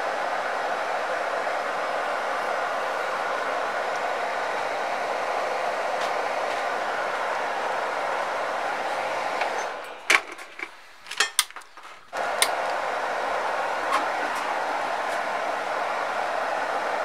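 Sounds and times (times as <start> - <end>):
hot-air blower rushing: 0.0 - 11.0, 12.1 - 17.0.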